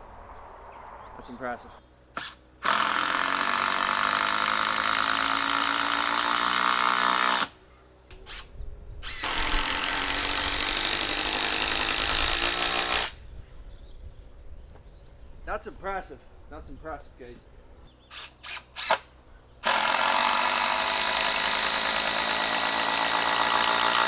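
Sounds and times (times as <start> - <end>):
impact driver running: 2.2 - 7.5, 8.2 - 13.2, 19.6 - 24.0.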